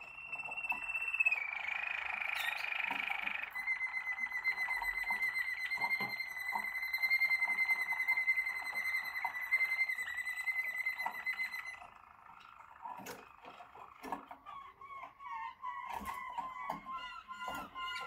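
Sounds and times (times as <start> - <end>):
canary whistled note: 0.0 - 11.8
canary warbling: 0.1 - 18.0.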